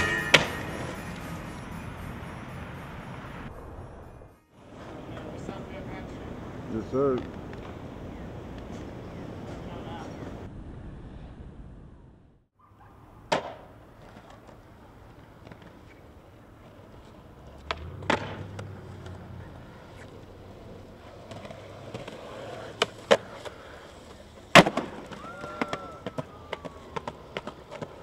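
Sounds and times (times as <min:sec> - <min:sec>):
skateboard wheels rolling on concrete: 0:00.0 - 0:28.0
skateboard cracking on ground: 0:13.3 - 0:28.0.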